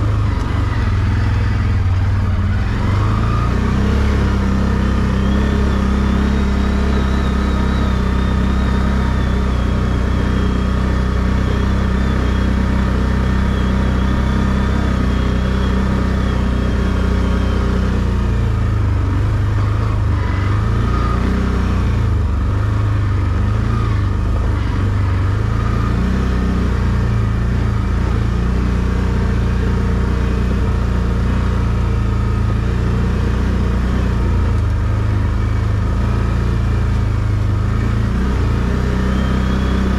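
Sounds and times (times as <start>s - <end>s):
atv engine running: 0.0s - 39.9s.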